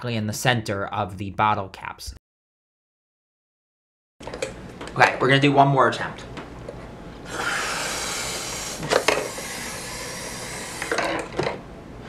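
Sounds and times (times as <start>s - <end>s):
air hissing out of balloon: 7.2s - 11.3s.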